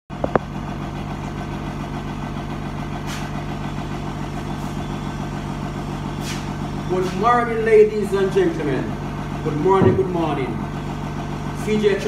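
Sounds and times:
engine idling: 0.1s - 12.0s
sharp knock: 9.8s - 10.2s.

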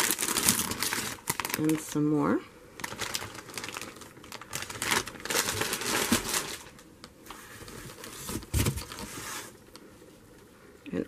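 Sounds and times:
plastic bag crinkling: 0.0s - 6.9s, 7.6s - 9.2s
hand rummaging among produce: 2.8s - 6.8s.

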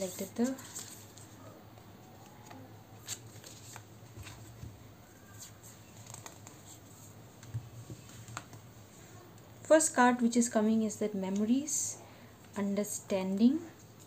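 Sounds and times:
cards being shuffled: 0.0s - 1.4s, 2.0s - 8.6s.

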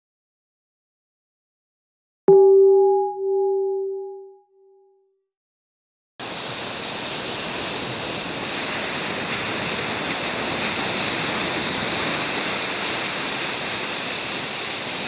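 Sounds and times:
waves breaking on shore: 6.2s - 15.0s.

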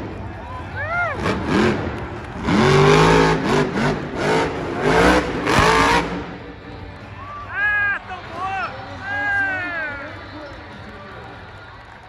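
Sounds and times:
monster truck engine revving: 0.0s - 6.8s.

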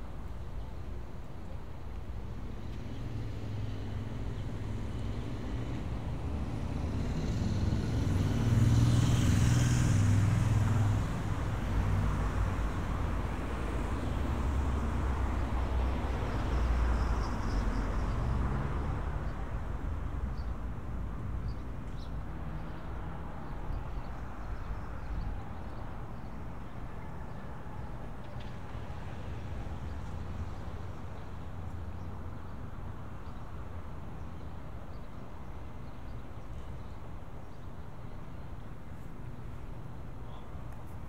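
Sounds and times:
steady traffic noise: 0.0s - 41.0s
vehicle driving past: 6.2s - 11.1s.

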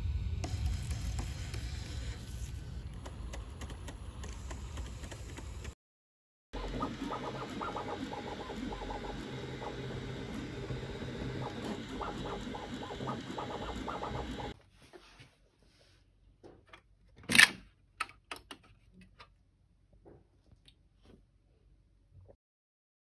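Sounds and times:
printer stepper motors whirring: 6.6s - 14.6s.

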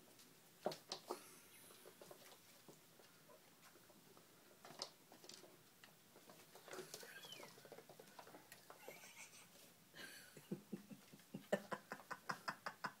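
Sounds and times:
kittens mewing: 6.9s - 7.6s.

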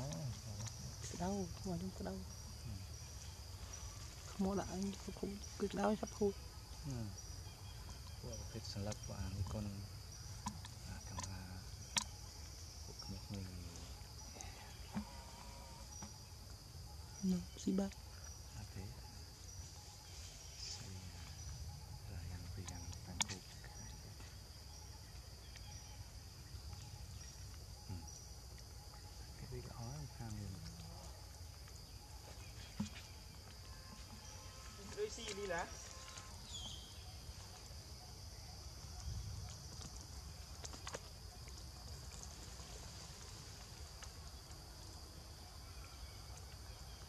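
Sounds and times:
insects chirring: 0.0s - 47.0s
high-pitched insect buzz: 31.9s - 37.5s.

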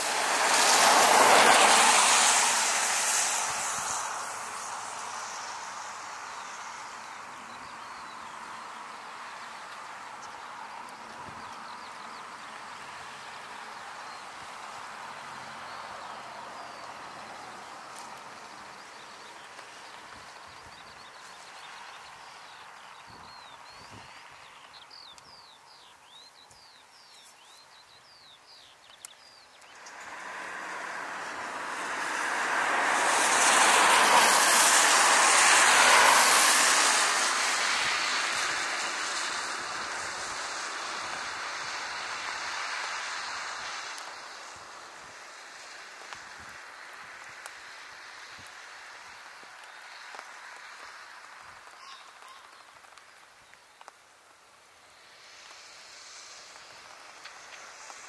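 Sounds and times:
aircraft engines rushing: 0.0s - 8.6s, 28.8s - 51.8s
birds chirping: 15.3s - 32.5s, 51.0s - 53.9s.

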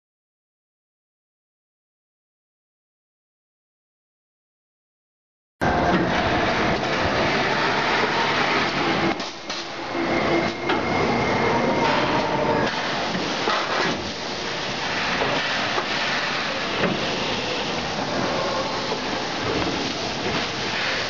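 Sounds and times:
machine rollers clattering: 5.6s - 18.6s.

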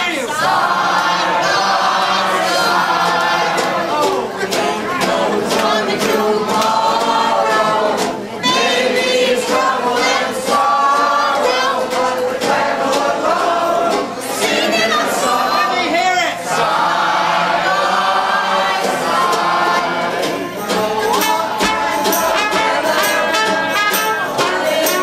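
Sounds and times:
banjo: 0.0s - 15.7s, 16.5s - 25.0s
men singing together: 0.0s - 25.0s
tuba: 16.5s - 25.0s
tambourine: 20.6s - 25.0s.

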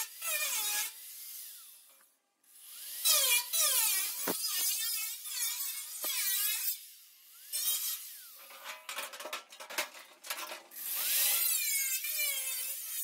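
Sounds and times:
angle grinder cutting steel: 2.6s - 9.2s, 10.2s - 13.0s.

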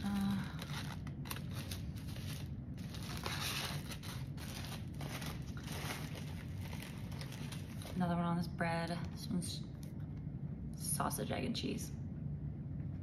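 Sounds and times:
foil wrapper crinkling and tearing: 0.0s - 8.2s.

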